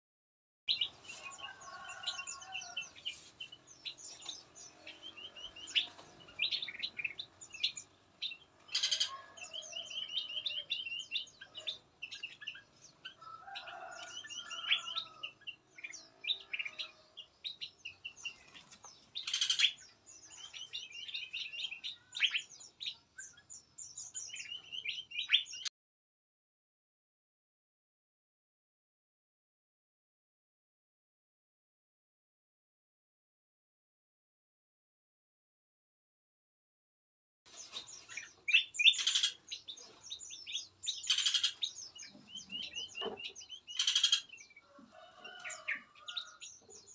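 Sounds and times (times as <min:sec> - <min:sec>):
songbirds chirping: 0:00.7 - 0:25.7, 0:37.5 - 0:46.9.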